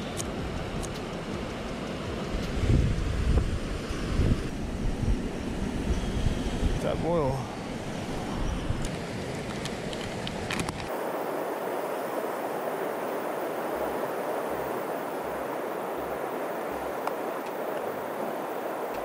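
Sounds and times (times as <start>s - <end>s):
river water rushing: 10.9s - 19.0s.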